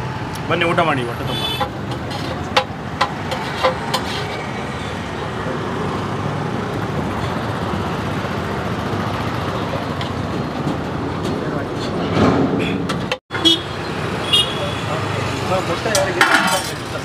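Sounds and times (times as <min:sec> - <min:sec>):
road traffic hum: 0:00.0 - 0:17.0
metal ladles clinking on plates: 0:15.8 - 0:17.0.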